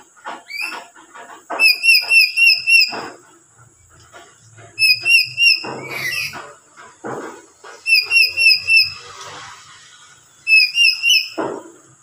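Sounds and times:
bird whistling notes: 1.6 - 2.9, 4.8 - 6.4, 7.8 - 9.1, 10.4 - 11.4
bird screeching calls: 1.6 - 3.0, 4.8 - 6.4, 7.8 - 9.1, 10.5 - 11.4.

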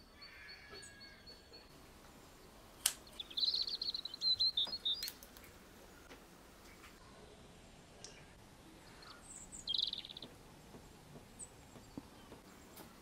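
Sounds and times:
small bird chirping: 2.3 - 6.1, 8.0 - 13.0.

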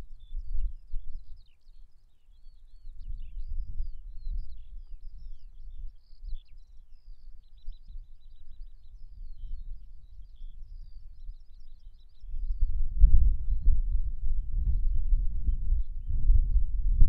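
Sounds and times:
songbirds chirping and trilling: 0.0 - 16.2
low rumble: 12.5 - 17.0.

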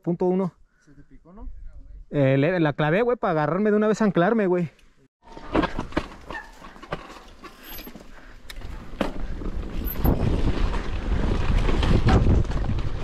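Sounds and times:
bike knocking on rough trail: 5.3 - 13.0
wind buffeting microphone: 8.5 - 13.0.

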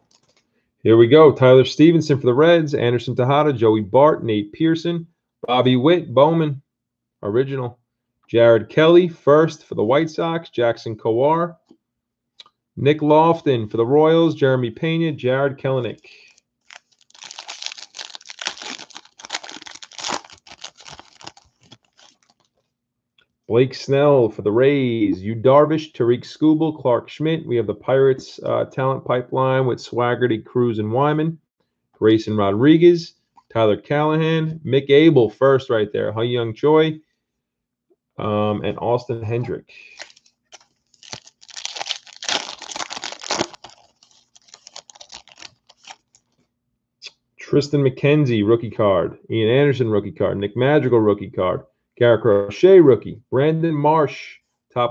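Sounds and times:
foil wrapper crinkling and tearing: 16.3 - 22.6, 39.9 - 46.4.

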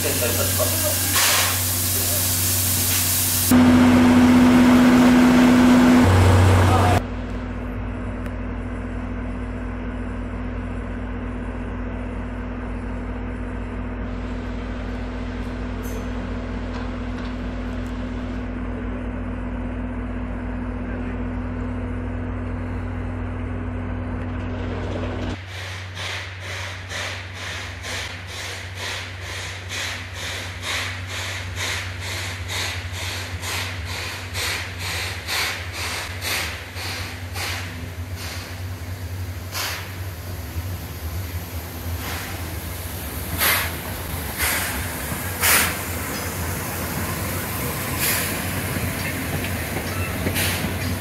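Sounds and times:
diesel locomotive idling: 0.0 - 51.0
steam locomotive exhaust beats: 25.4 - 51.0.

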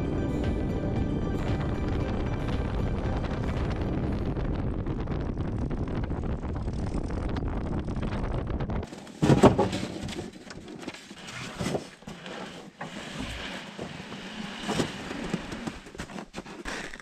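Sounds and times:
airplane engine rumble: 0.0 - 8.8
wind on microphone: 0.0 - 8.9
plywood sheets knocking and rustling: 8.9 - 12.2.

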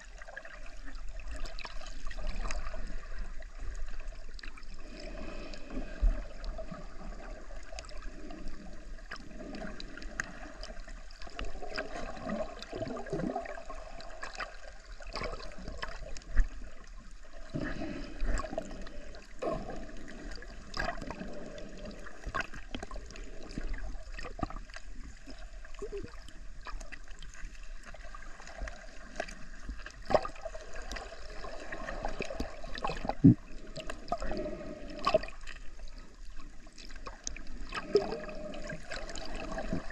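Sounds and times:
underwater water wash: 0.0 - 39.9
small underwater clicks: 20.7 - 34.3.

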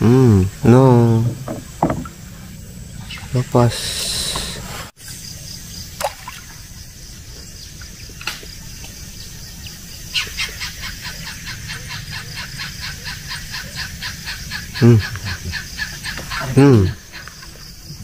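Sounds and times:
water splash: 5.9 - 6.8.

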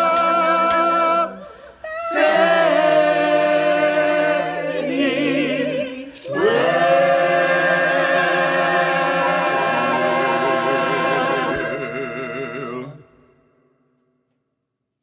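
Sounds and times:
choir singing held chords: 2.0 - 13.9.

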